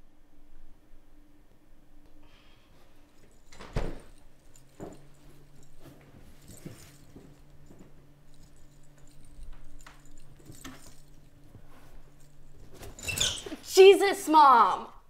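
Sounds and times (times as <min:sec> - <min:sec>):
low steady hum: 0:00.0 - 0:15.0
soft footsteps: 0:02.8 - 0:13.7.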